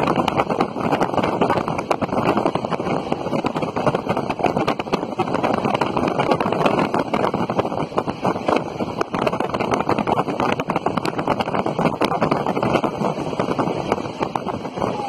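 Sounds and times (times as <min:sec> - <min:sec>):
train wheels rumbling and clacking: 0:00.0 - 0:15.0
wind buffeting microphone: 0:00.0 - 0:15.0.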